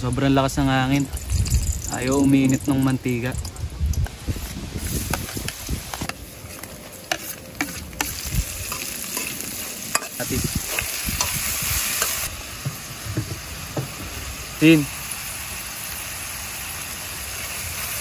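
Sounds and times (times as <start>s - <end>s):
vegetables sizzling in hot oil: 0.0s - 18.0s
metal ladle scraping a wok: 6.0s - 12.3s.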